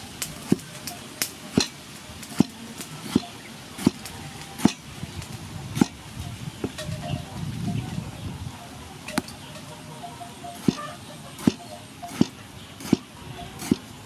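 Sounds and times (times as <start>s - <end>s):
cleaver chopping on wooden board: 11.5s - 13.8s.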